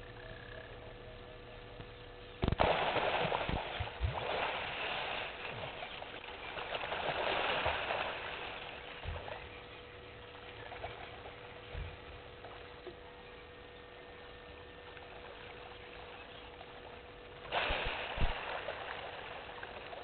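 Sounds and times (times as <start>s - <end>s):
heavy thuds in water: 2.4s - 5.7s
hippos splashing in water: 2.4s - 9.6s, 17.5s - 20.0s.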